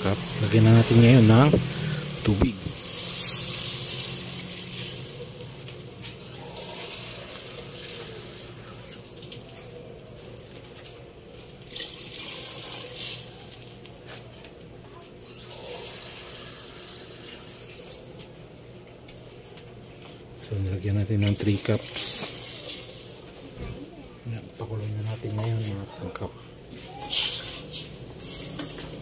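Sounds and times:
water pouring into a pot: 0.0 - 5.6, 6.5 - 9.5, 11.6 - 13.8, 15.5 - 18.1, 21.3 - 23.2.

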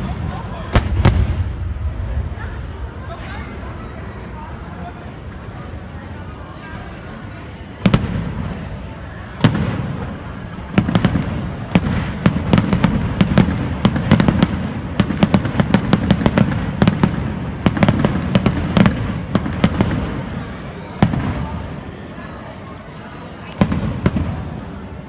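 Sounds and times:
fireworks bangs and crackling: 0.0 - 22.6, 23.2 - 25.0.

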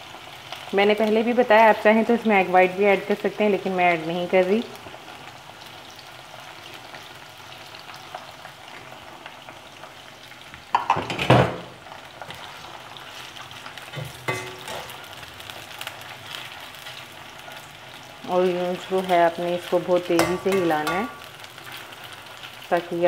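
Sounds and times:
chicken deep-frying sizzle: 0.0 - 23.0
metal spoon clattering on pan: 13.9 - 15.0, 20.2 - 21.3.

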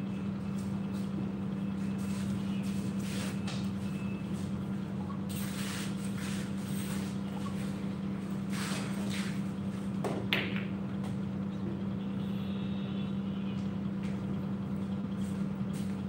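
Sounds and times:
steady low hum: 0.0 - 16.0
pool balls clicking: 10.0 - 11.2.

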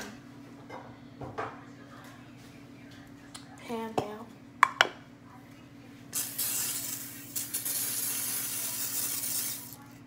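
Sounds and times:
cooking spray hissing: 6.1 - 9.9.

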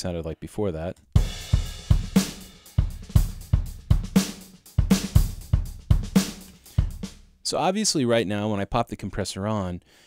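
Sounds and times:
loud kick drum: 1.2 - 7.3
drum kit beat: 1.2 - 7.5.

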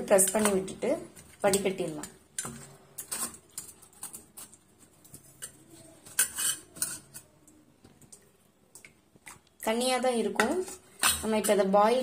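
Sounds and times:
steel ladle scraping steel vessel: 6.1 - 7.2.

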